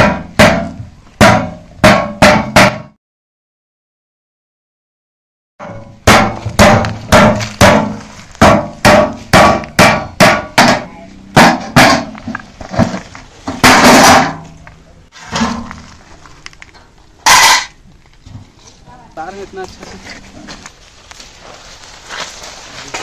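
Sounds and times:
machete striking sheet metal: 5.6 - 12.2, 13.6 - 14.6, 17.2 - 17.8
metal grating: 5.6 - 17.8.

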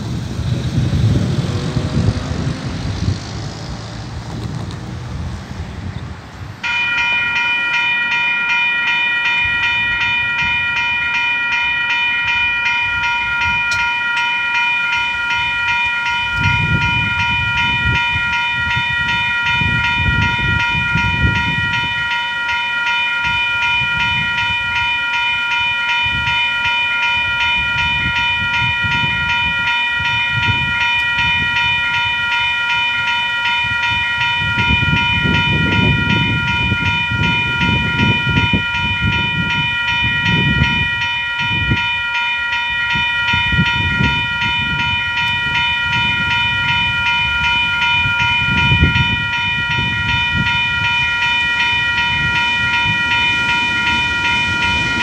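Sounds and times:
level crossing warning bell: 0.0 - 5.4, 6.2 - 55.0
low rumbling: 0.0 - 6.6.

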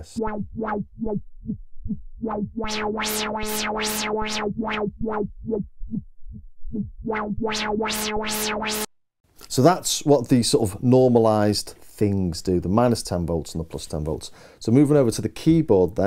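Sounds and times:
synthesizer note with filter wah: 0.0 - 1.2, 2.2 - 5.6, 6.7 - 8.9.

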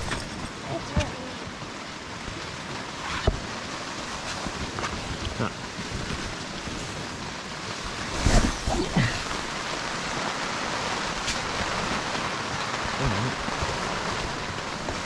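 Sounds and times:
heavy rain: 0.0 - 15.0
strong wind: 0.0 - 15.0.

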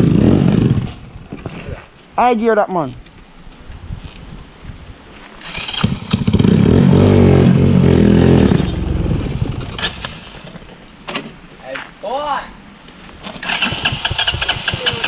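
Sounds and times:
motorcycle passing by: 5.4 - 10.1.

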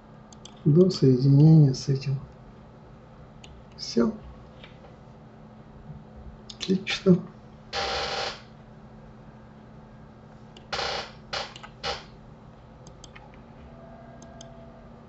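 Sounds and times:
low electrical hum: 0.0 - 15.0
computer mouse clicks: 0.3 - 0.6, 11.5 - 11.8, 12.8 - 13.3, 14.2 - 14.6.

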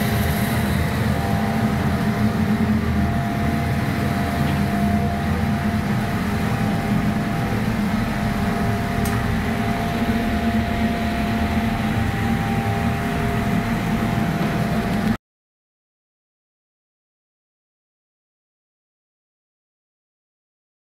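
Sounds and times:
mechanical drone with whine: 0.0 - 15.2.

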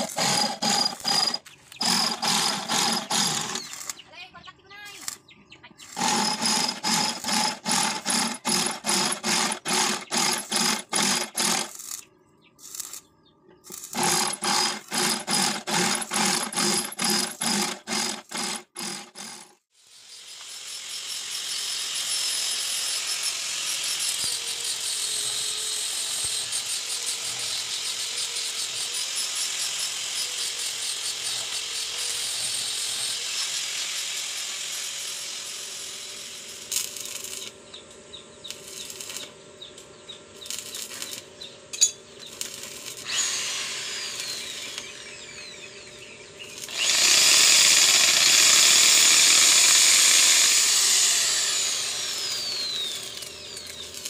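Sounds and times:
electric drill boring through steel: 0.0 - 4.0, 5.9 - 12.0, 13.7 - 37.5, 42.3 - 54.0
arc welder crackling hiss: 12.6 - 13.0, 13.7 - 14.2, 26.0 - 37.6, 38.5 - 39.4, 40.3 - 41.3, 42.2 - 45.1, 46.4 - 54.0.

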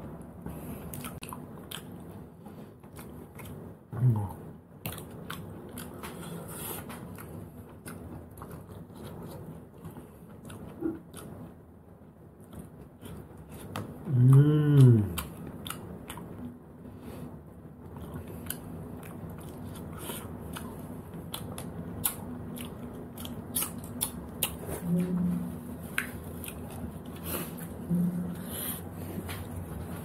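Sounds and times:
person humming: 4.0 - 4.4, 14.0 - 15.3, 24.8 - 25.6, 27.8 - 28.5
chewing and sucking: 17.8 - 25.1.

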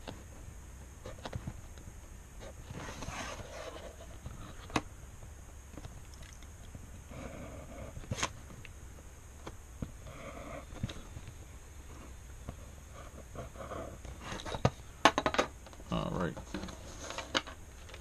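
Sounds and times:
pen scratching on paper: 12.9 - 14.0.

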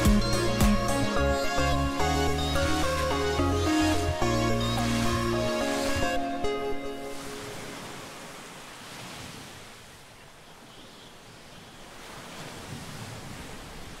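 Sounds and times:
music: 0.0 - 7.7
ocean waves washing in: 0.0 - 10.1, 11.3 - 14.0.

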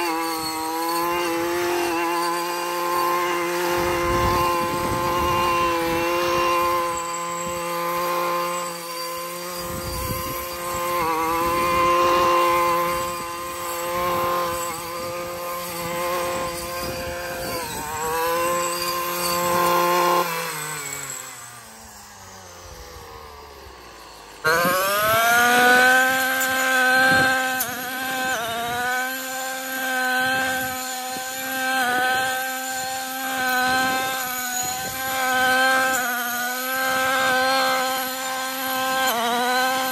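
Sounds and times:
brushcutter engine revving: 0.0 - 39.9.

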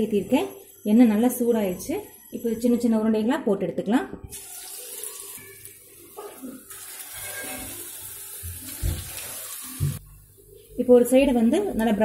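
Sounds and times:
batter sizzling in hot oil: 4.3 - 10.0.

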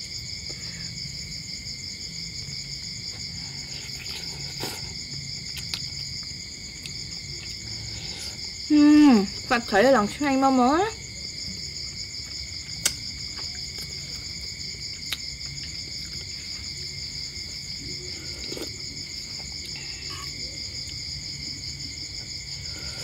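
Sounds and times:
night insects trilling: 0.0 - 23.0
person sipping soup: 3.5 - 5.0, 7.5 - 8.6, 17.9 - 20.3.

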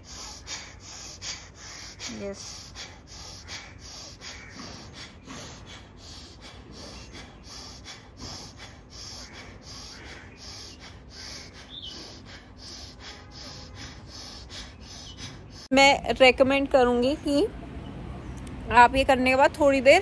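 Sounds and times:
woman breathing forcefully: 0.0 - 15.7.

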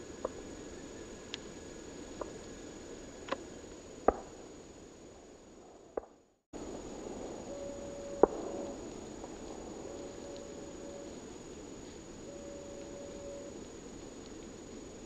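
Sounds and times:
low background hiss: 0.0 - 6.0, 6.6 - 15.0
brief steady hum: 9.9 - 11.2, 12.3 - 13.5.

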